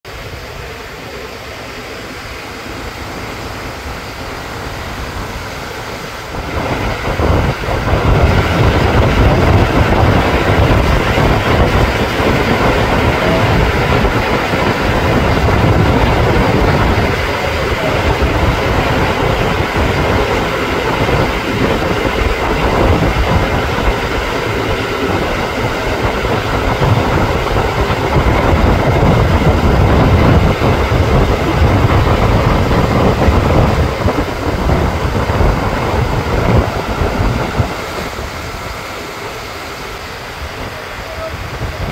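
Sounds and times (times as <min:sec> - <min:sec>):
boat engine running: 0:00.0 - 0:41.9
water rushing along hull: 0:00.0 - 0:41.9.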